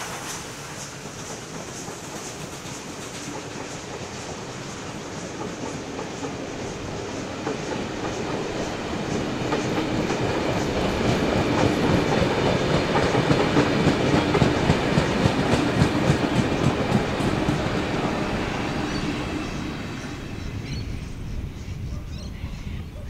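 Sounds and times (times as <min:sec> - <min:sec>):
train wheels clacking over rails: 0:00.0 - 0:20.8
train rumble: 0:00.0 - 0:23.0.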